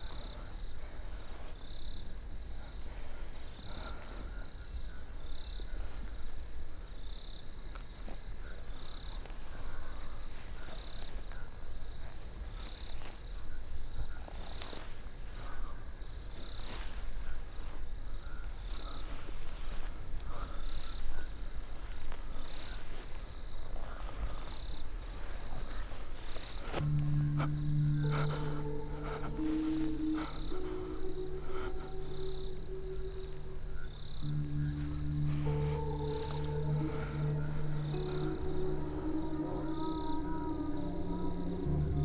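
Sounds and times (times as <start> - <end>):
crickets chirping: 0.0 - 42.0
low sustained music tone: 25.2 - 42.0.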